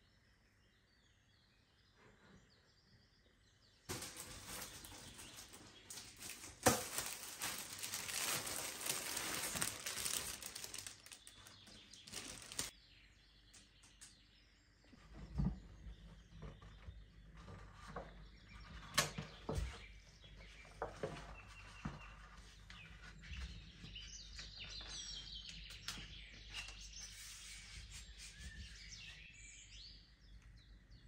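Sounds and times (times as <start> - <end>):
plastic sheeting crinkling: 3.9 - 12.7.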